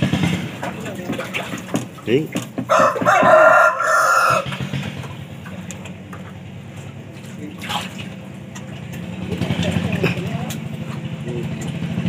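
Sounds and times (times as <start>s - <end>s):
low engine hum: 0.0s - 12.0s
rooster crowing: 2.7s - 4.6s.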